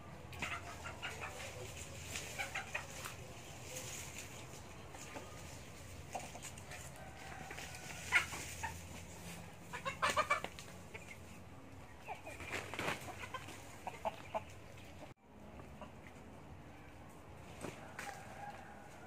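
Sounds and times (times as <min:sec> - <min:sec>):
chickens clucking: 0:00.0 - 0:19.0
rustling and scraping in metal basin: 0:01.2 - 0:10.8.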